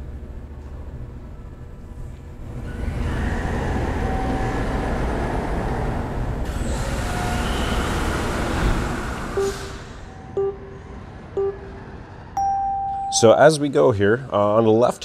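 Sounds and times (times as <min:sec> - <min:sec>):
short electronic beep: 0:09.4 - 0:13.4.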